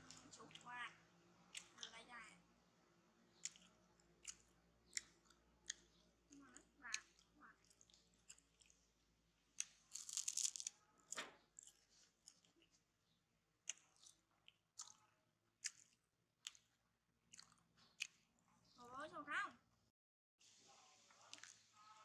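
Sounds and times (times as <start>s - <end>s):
plastic packaging crinkling: 9.9s - 10.7s.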